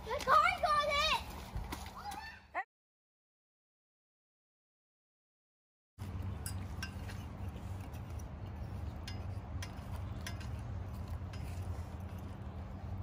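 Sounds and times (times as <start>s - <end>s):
steady low hum: 6.0s - 13.0s.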